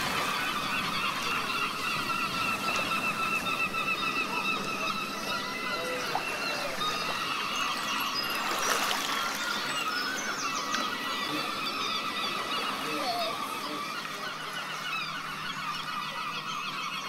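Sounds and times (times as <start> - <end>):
bird calls and chirps: 0.0 - 17.0.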